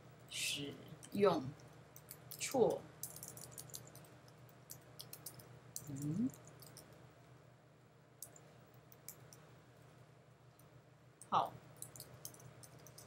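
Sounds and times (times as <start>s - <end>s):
keyboard keys clicking: 3.0s - 6.9s, 11.8s - 13.0s
person humming: 5.9s - 6.4s.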